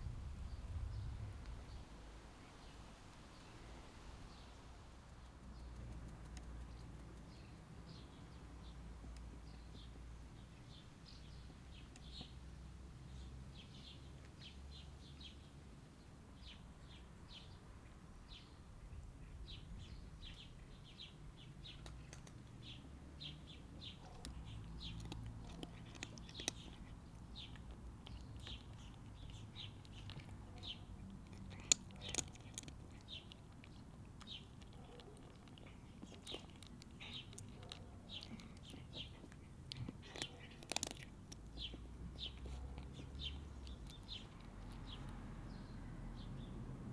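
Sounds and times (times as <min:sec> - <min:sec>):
faint low outdoor rumble: 0:00.0 - 0:46.9
small birds chirping: 0:00.4 - 0:46.9
sharp clicks: 0:05.1 - 0:07.4.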